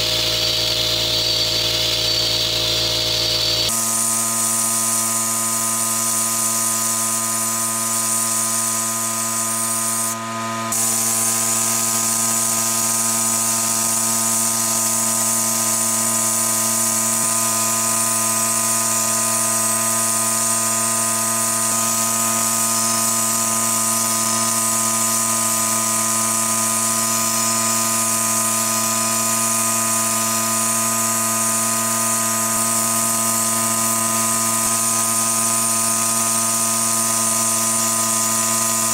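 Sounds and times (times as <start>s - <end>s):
machine hum: 0.0s - 3.9s
sandblasting gun hissing: 0.0s - 38.9s.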